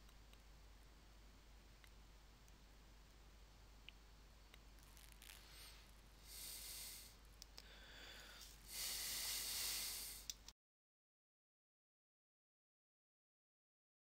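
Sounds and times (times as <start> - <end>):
small clicks: 7.3 - 7.7.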